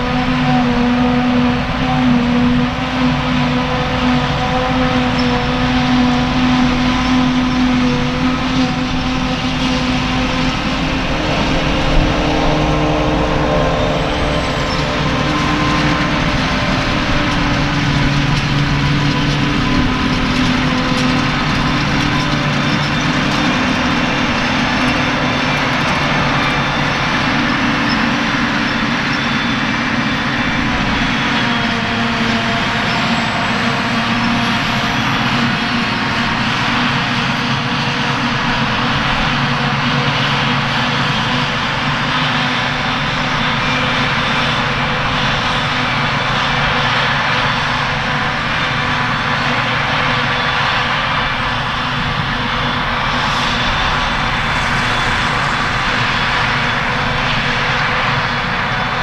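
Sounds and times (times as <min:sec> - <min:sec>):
harvester machine droning: 0:00.0 - 0:59.0.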